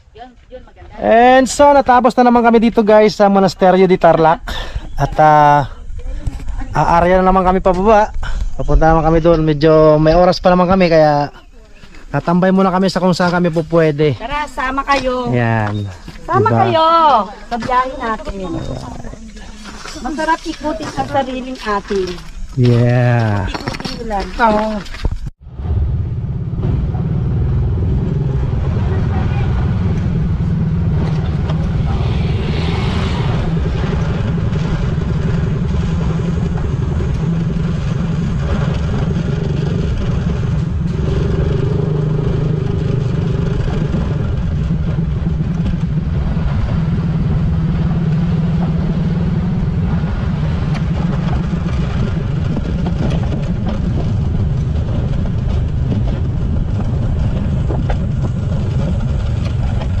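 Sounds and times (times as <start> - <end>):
road noise: 0.0 - 60.0
motorcycle engine running: 26.0 - 60.0.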